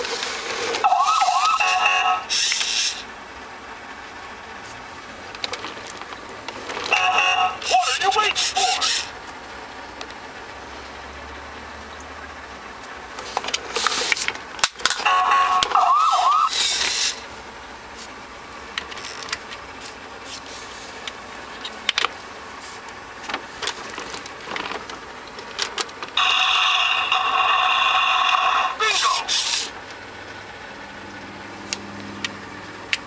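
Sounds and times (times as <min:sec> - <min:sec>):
warbling siren: 0:00.8 - 0:02.6, 0:06.9 - 0:07.8, 0:15.1 - 0:16.8, 0:26.2 - 0:29.2
toy electronic sound effects: 0:00.8 - 0:03.0, 0:06.9 - 0:09.1, 0:15.0 - 0:17.2, 0:26.2 - 0:29.7.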